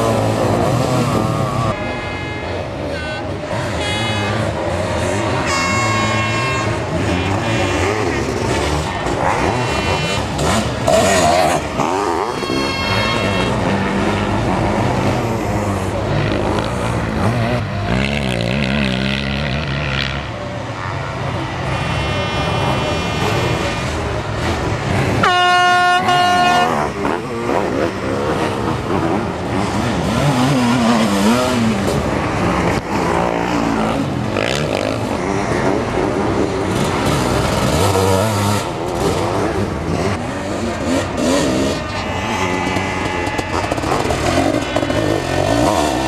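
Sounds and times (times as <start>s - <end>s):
horn blast: 0.0s - 14.9s, 25.2s - 27.1s
motorcycle engines revving: 0.0s - 46.0s.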